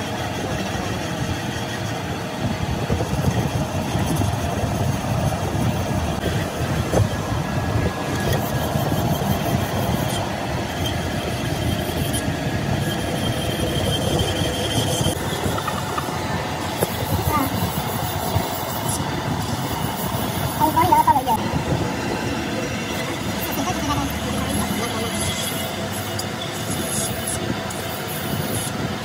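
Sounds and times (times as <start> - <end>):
metal lathe cutting rumble: 0.0 - 29.0
thin high steady tone: 3.8 - 29.0.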